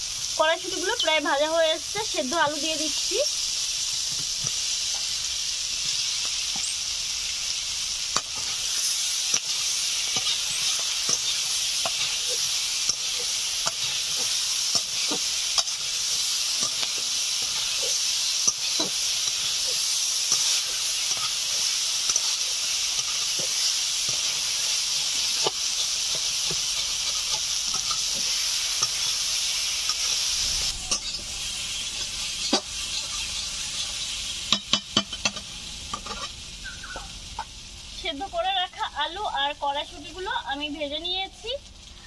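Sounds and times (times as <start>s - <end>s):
vegetables sizzling in hot oil: 0.0s - 42.0s
spatula ticks and scrapes: 8.1s - 29.1s.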